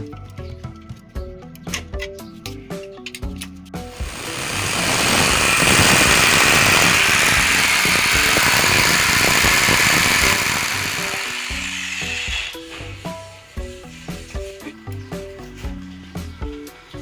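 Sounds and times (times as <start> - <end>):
hammer drill boring into wall: 3.9 - 13.2.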